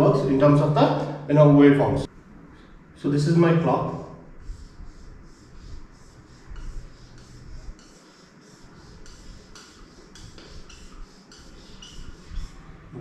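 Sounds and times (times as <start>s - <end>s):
marker rubbing on whiteboard: 4.4s - 13.0s.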